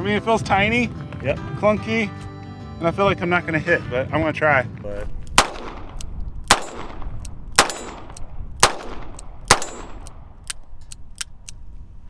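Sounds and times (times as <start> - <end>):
revolver gunshots with echo: 5.3 - 10.4.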